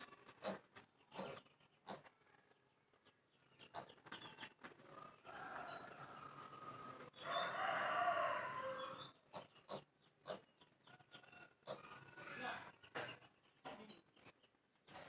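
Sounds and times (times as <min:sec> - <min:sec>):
rooster crowing: 0:07.2 - 0:09.0.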